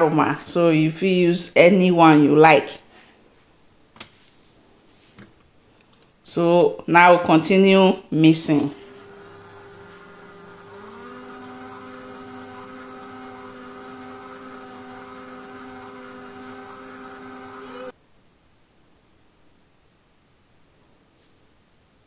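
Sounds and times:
stand mixer motor humming: 8.8s - 17.9s.

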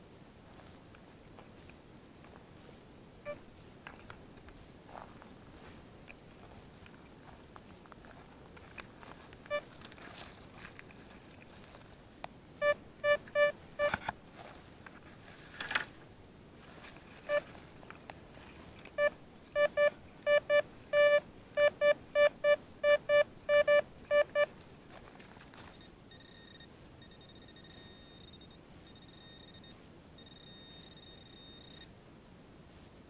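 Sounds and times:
metal detector beeping: 9.5s - 9.7s, 12.6s - 14.0s, 17.3s - 17.5s, 19.0s - 24.5s, 25.6s - 31.9s
high steady detector tone: 12.6s - 14.0s, 19.0s - 24.5s, 25.6s - 31.9s.

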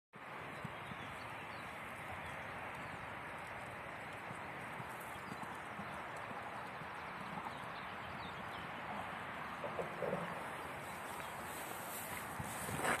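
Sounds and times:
steady outdoor hiss: 0.2s - 13.0s
horse hoofbeats on sand: 0.4s - 13.0s.

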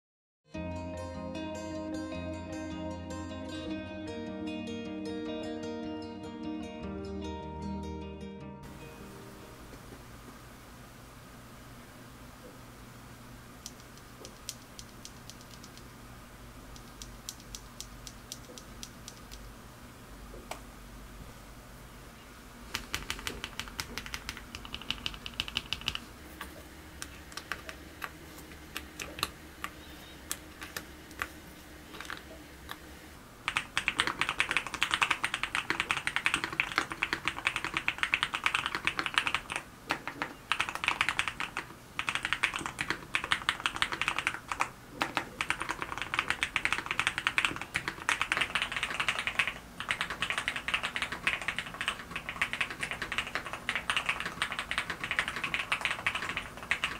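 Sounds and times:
mechanical keyboard typing: 13.7s - 15.9s, 16.8s - 19.4s, 22.8s - 26.0s, 33.5s - 56.9s.

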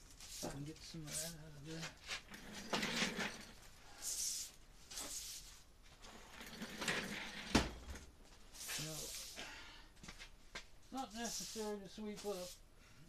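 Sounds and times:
broom bristles sweeping floor: 0.1s - 2.2s, 3.9s - 5.7s, 8.4s - 9.4s, 10.9s - 12.6s.

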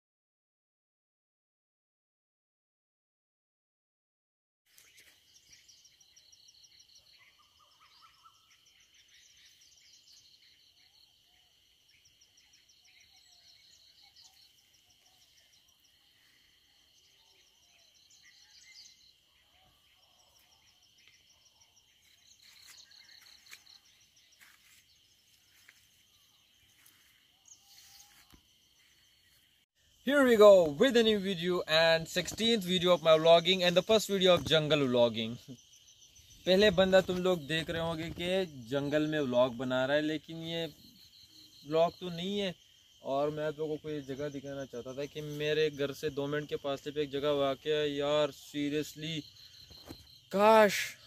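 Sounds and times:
bird trills and chirps: 4.7s - 29.4s.

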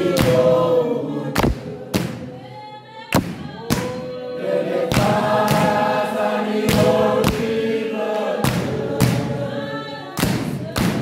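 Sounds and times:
men singing unaccompanied: 0.0s - 2.0s, 3.7s - 11.0s
sharp hand claps: 6.7s - 7.6s.

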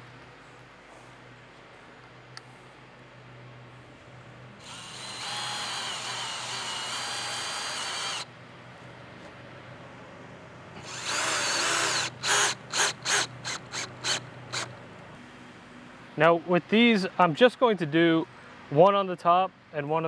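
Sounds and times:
cordless drill driving screws into wood: 4.6s - 8.3s, 10.8s - 14.7s.

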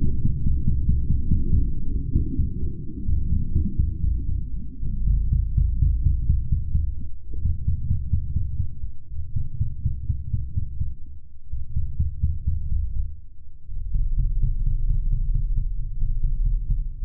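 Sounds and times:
deep pulsing low rumble: 0.0s - 17.0s.

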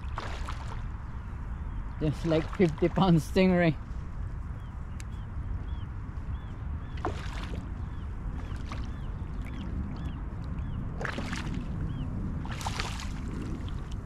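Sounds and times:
stingray splashing in shallow water: 0.0s - 0.9s, 7.0s - 7.8s, 8.4s - 13.8s.

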